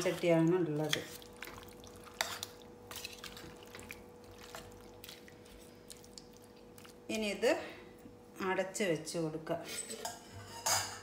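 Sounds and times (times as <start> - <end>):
spoon stirring wet food: 0.0 - 7.3
faint steady hum: 0.0 - 11.0.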